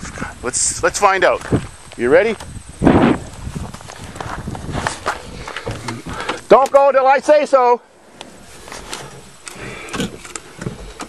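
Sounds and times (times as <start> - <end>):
scuffing footsteps: 3.1 - 6.5.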